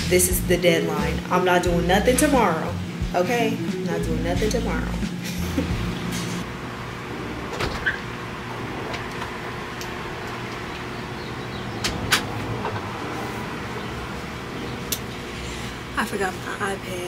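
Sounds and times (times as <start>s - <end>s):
steady background hum: 0.0s - 17.0s
glass door opening and shutting: 7.5s - 8.1s, 11.6s - 13.0s.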